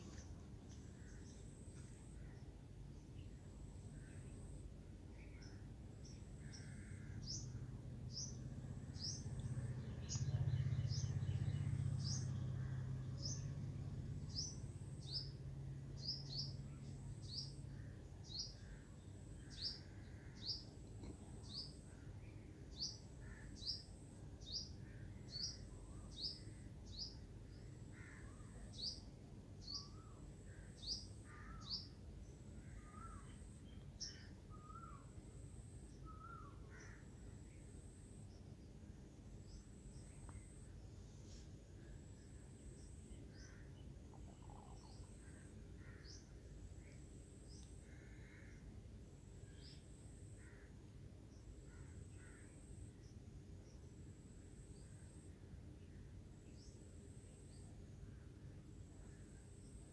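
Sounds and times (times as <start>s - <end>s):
lower wavering bird calls: 14.3s - 35.2s, 35.9s - 37.6s, 41.8s - 48.8s.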